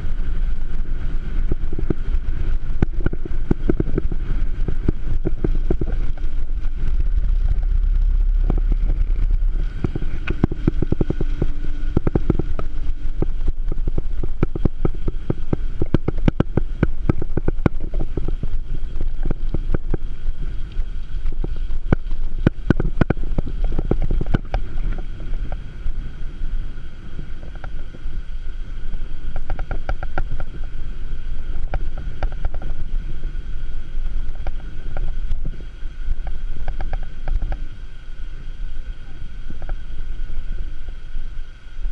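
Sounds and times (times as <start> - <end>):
bicycle rattling over road: 0.0 - 28.1
wind buffeting microphone: 0.0 - 33.4.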